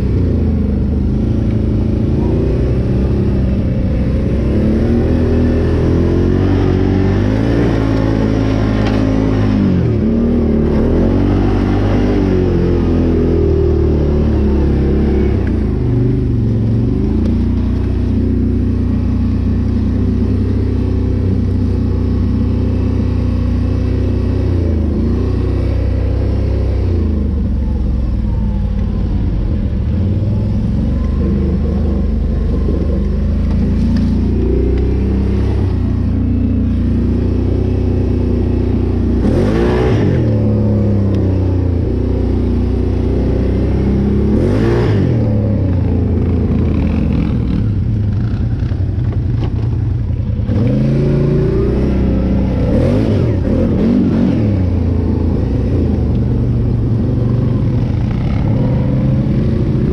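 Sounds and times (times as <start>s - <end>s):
atv engine revving: 0.0s - 59.9s.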